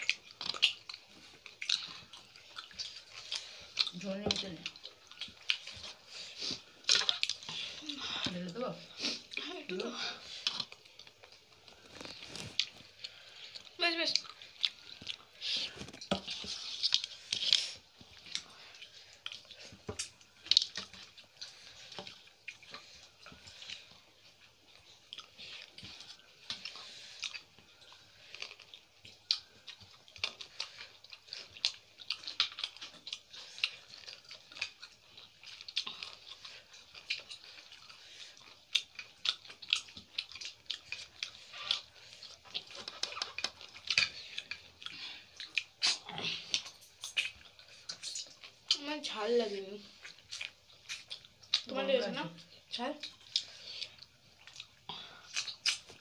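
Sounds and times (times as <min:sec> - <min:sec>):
fingers squelching food: 0:00.0 - 0:49.2, 0:53.0 - 0:56.0
chewing: 0:00.0 - 0:56.0
wet lip smacks: 0:38.8 - 0:48.5, 0:50.0 - 0:51.7, 0:53.0 - 0:56.0.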